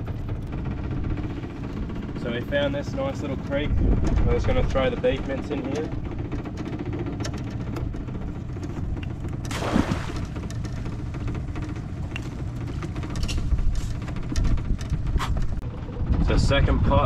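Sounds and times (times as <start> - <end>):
steady low rumble: 0.0 - 17.0
clicks and creaks of gear: 11.6 - 15.6.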